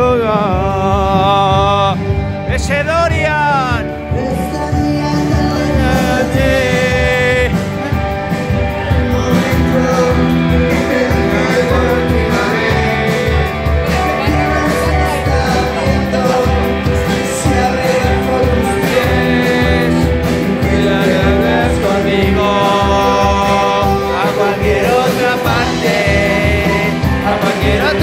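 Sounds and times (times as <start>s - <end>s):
drums: 0.0s - 28.0s
electric guitars: 0.0s - 28.0s
man singing: 0.0s - 28.0s.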